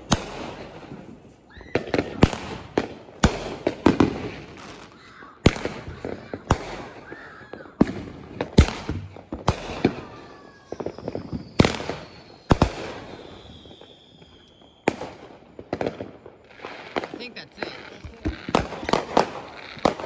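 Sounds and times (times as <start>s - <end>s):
fireworks bangs: 0.0s - 20.0s
fireworks crackling: 0.0s - 20.0s
faint falling whistle: 9.7s - 14.9s.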